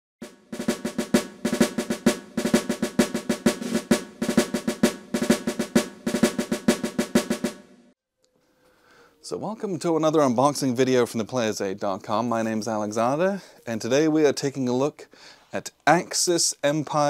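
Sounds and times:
low drum tone: 0.2 - 7.7
rapid snare drumming: 0.2 - 7.9.

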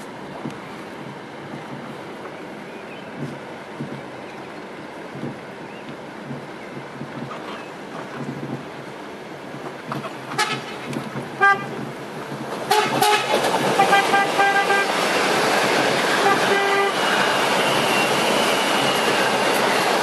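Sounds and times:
train rolling noise: 0.0 - 20.0
train horn: 10.4 - 10.8, 11.4 - 11.8, 12.6 - 15.0, 16.1 - 17.1.

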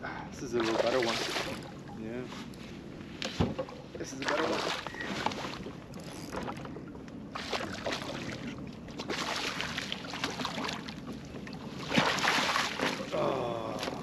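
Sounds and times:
fish splashing in water: 11.8 - 13.1.

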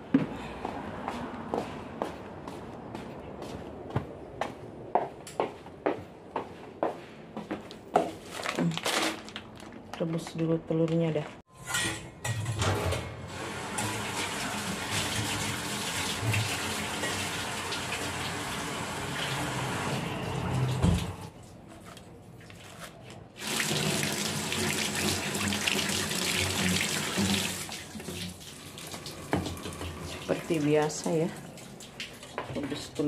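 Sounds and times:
tap water running into sink: 13.6 - 19.9, 23.4 - 32.7.

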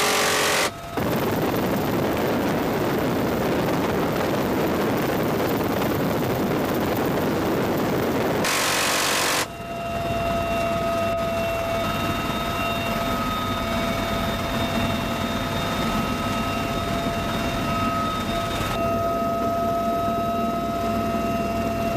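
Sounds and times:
machine gun rapid fire: 0.0 - 0.7, 8.4 - 9.5
minigun buzzing burst: 0.0 - 1.0, 8.4 - 9.5.

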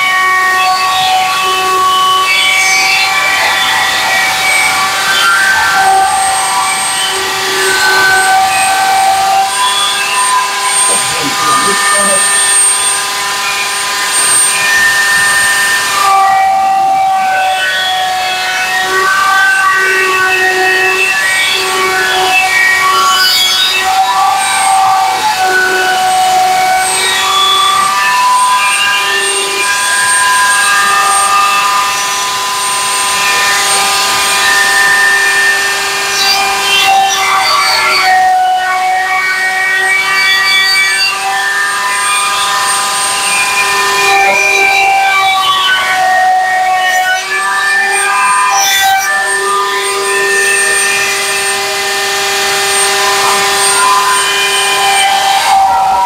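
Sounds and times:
router high whine: 0.0 - 56.0
scroll saw cutting wood: 3.6 - 56.0.

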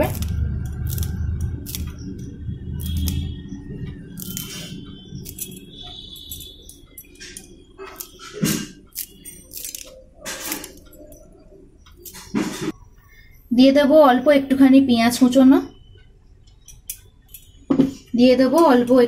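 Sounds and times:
scissors snipping: 0.0 - 3.3, 4.1 - 11.3.

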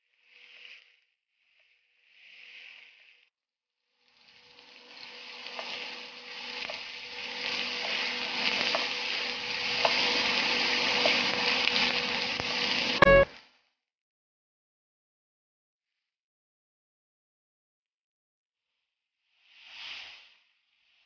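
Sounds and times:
onion and garlic sizzling in oil: 4.0 - 13.2.

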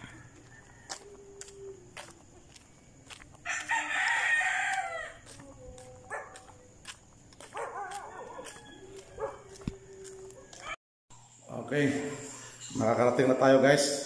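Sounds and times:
rooster crowing: 0.0 - 2.6, 3.4 - 6.4, 7.4 - 10.8.

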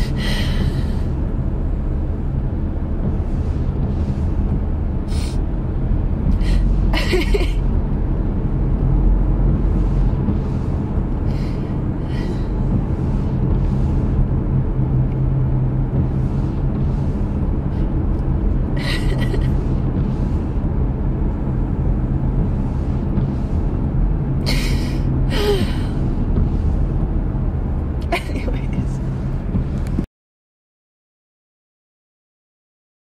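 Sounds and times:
car cabin road and engine rumble: 0.0 - 30.1.

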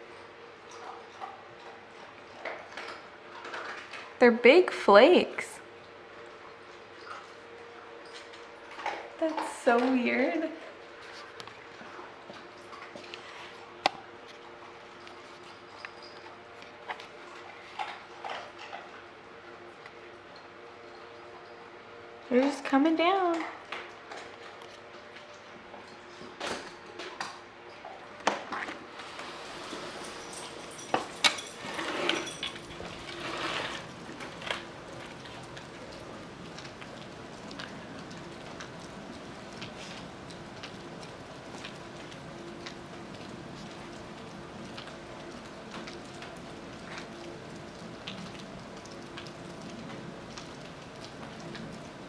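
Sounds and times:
rustling scrapes: 28.9 - 30.7, 31.5 - 34.5
hiss of heavy snow falling: 29.0 - 30.3
drips tapping on plastic roof: 33.8 - 52.0.

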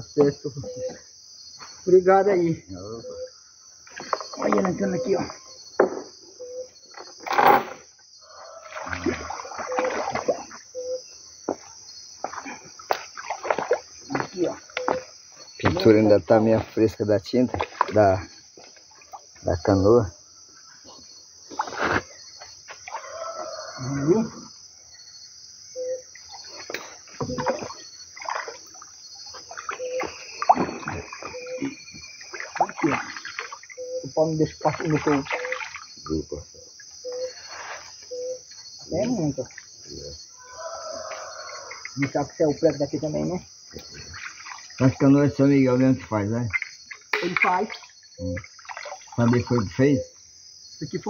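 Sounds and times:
high insect chorus: 0.0 - 51.0
water splashing around canoe: 8.6 - 10.9, 12.2 - 15.8, 17.4 - 19.3, 26.2 - 36.2, 43.7 - 45.2, 46.5 - 49.8.

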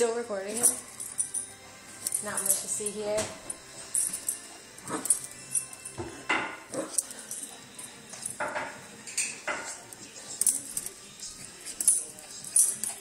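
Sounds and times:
light clicks and clinks: 7.0 - 13.0.

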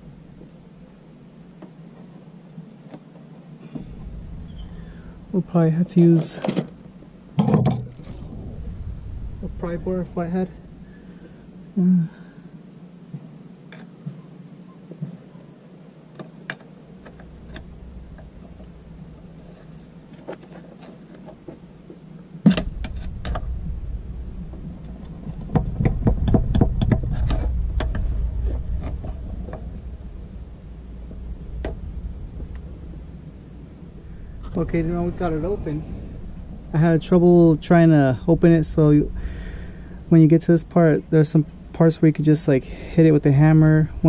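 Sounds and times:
low rumble: 3.6 - 12.4, 16.8 - 44.0
clicks and knocks: 24.5 - 29.9.

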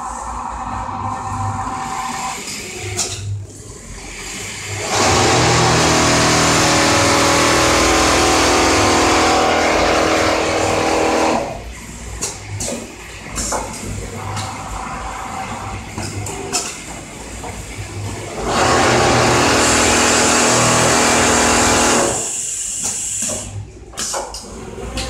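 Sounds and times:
sewing machine running: 4.2 - 11.7, 18.2 - 22.4.

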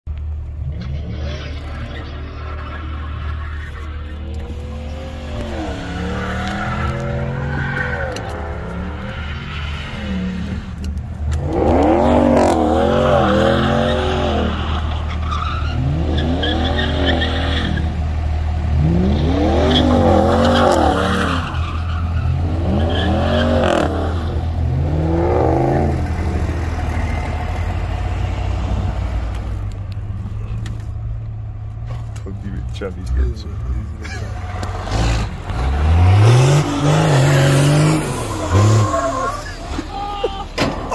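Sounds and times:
low engine drone: 0.1 - 21.6
tyres squealing: 19.0 - 24.6, 33.8 - 40.9.

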